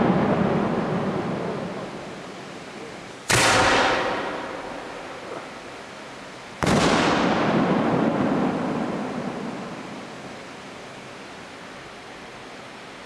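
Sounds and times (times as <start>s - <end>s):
firework bang: 0.0s - 1.7s, 3.3s - 5.4s, 6.6s - 9.8s
firework rumbling tail: 0.0s - 5.8s, 6.6s - 10.6s.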